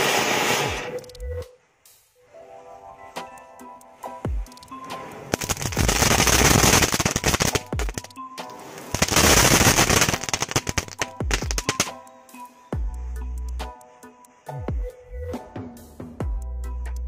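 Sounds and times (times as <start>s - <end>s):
electronic music with deep bass: 0.7s - 1.6s, 9.0s - 17.0s
firecrackers cracking and popping: 5.3s - 12.1s.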